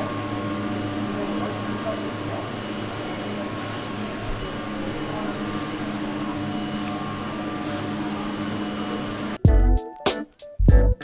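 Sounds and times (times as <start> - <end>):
mechanical hum: 0.0 - 9.5.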